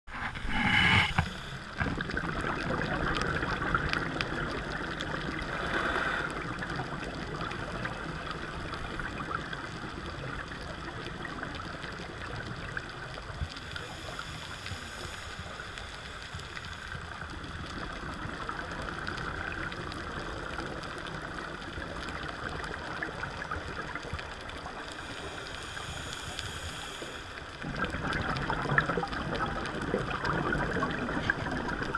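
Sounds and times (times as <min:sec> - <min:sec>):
regulator breathing: 0:00.1 - 0:01.8
underwater hiss and crackle: 0:00.1 - 0:31.9
bubbles rushing: 0:27.6 - 0:31.9.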